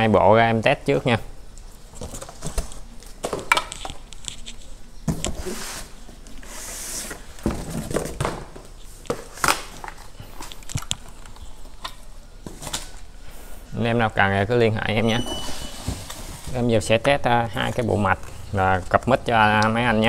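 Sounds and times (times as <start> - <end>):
cardboard rustling and scraping: 4.3 - 10.5, 15.3 - 16.9.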